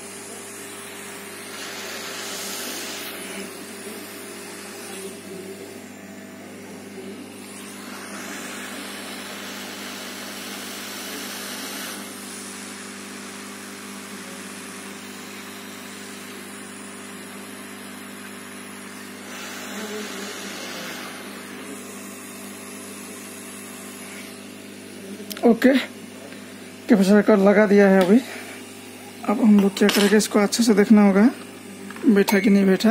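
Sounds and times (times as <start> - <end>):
hot air gun blowing: 1.3 - 5.8, 7.3 - 13.7, 18.8 - 24.4.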